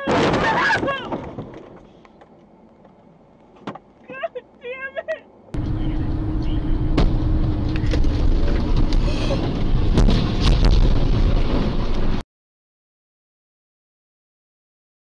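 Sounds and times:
car rumble from inside cabin: 0:05.6 - 0:11.2.

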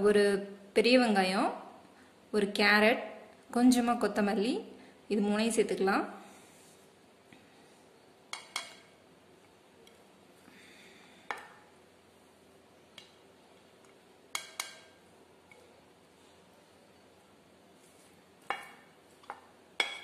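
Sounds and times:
spoon clinking on plate and bowl: 0:08.3 - 0:08.9, 0:14.3 - 0:15.6, 0:18.5 - 0:20.0.

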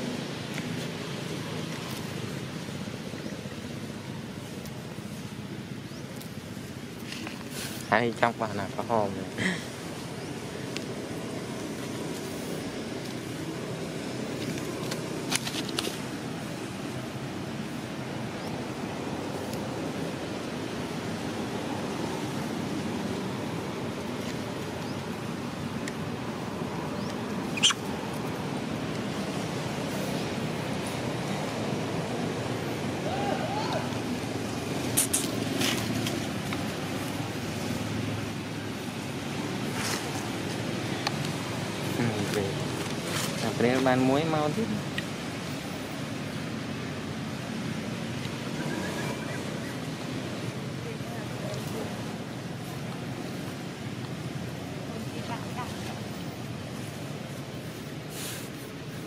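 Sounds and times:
rushing outdoor background noise: 0:00.0 - 0:59.0
brief hiss: 0:58.1 - 0:58.7.

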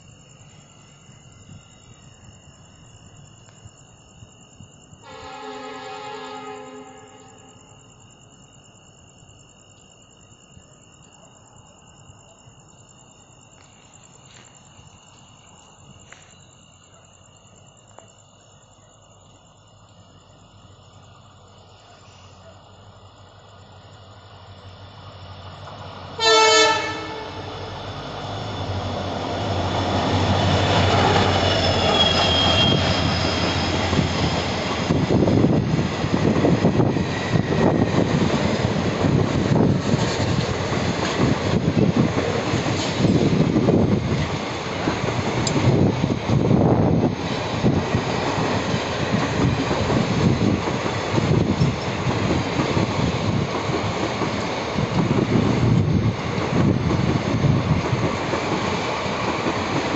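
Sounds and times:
heavy train rumble: 0:00.0 - 0:09.3, 0:18.9 - 0:59.9
train horn blast: 0:05.0 - 0:07.5, 0:26.2 - 0:27.6
high wheel squeal: 0:30.1 - 0:35.2.

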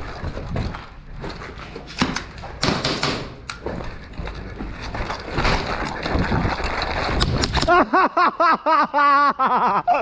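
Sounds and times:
sharp knocks and clacks: 0:01.9 - 0:06.0
scraping or rustling: 0:03.6 - 0:07.7.

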